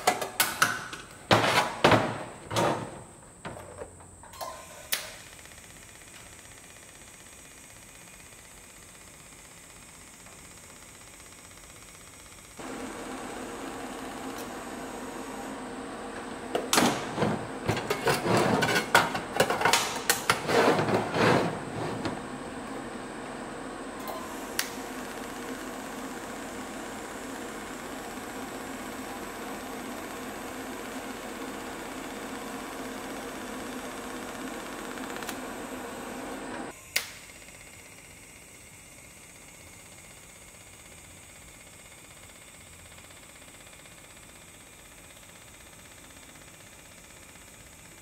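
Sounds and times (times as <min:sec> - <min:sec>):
metallic clanks with ringing: 0:04.2 - 0:04.9.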